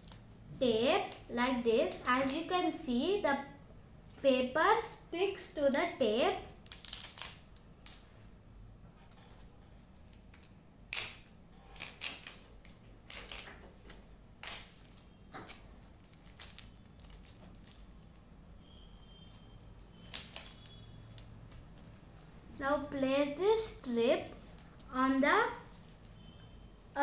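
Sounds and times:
adhesive tape crackling: 0.0 - 0.3, 0.9 - 2.8, 6.5 - 8.1, 9.0 - 22.6.

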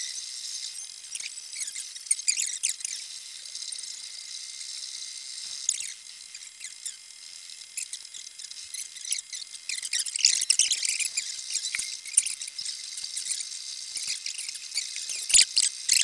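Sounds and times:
steady high hum: 0.0 - 16.0
stepper motors chirping and whining: 0.0 - 16.0.

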